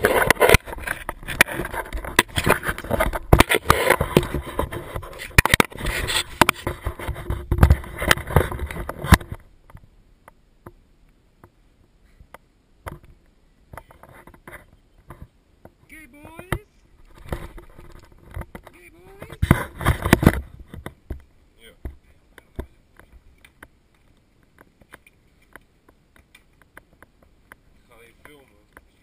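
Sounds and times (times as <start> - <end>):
camera being handled: 0.0 - 9.4.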